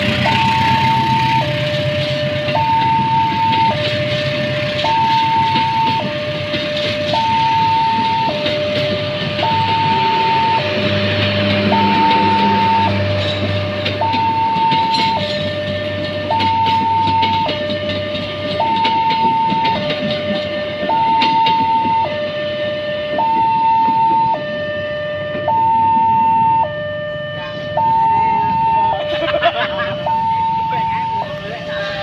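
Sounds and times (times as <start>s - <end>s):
train wheels clattering on rails: 0.0s - 24.3s
level crossing two-tone alarm: 0.0s - 32.0s.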